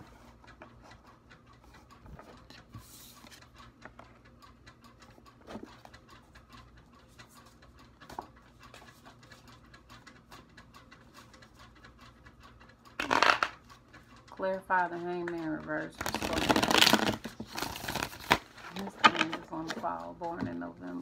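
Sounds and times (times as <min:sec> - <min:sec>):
cards being shuffled: 0:16.0 - 0:19.4.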